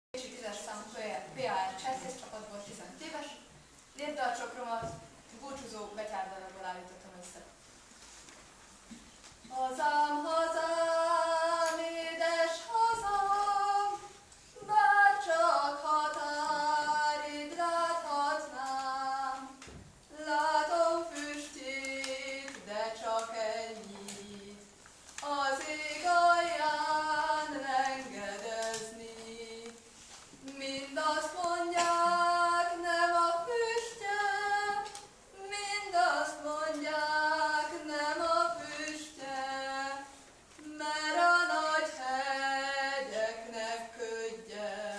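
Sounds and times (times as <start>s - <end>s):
woman singing unaccompanied: 9.4s - 44.9s.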